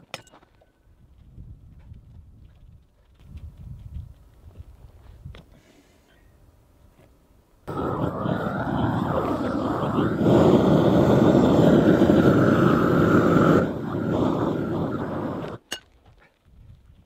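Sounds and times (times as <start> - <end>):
gas torch burning: 7.7 - 15.6.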